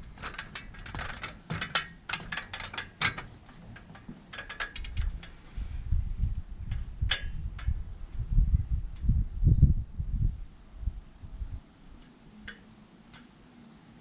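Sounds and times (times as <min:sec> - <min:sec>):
metal ladder clicking and knocking: 0:00.0 - 0:05.4, 0:06.7 - 0:07.7.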